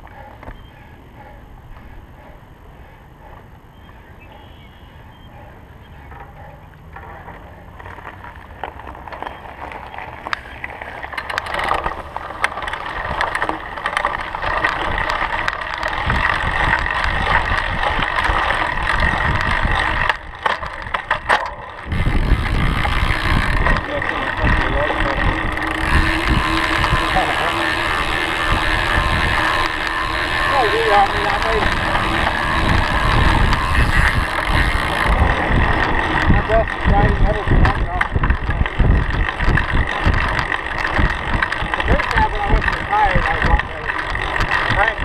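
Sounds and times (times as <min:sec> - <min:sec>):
tyres humming on pavement: 0:00.0 - 0:45.0
bike tyres crunching on gravel: 0:06.9 - 0:45.0
wind rumble on microphone: 0:14.0 - 0:45.0.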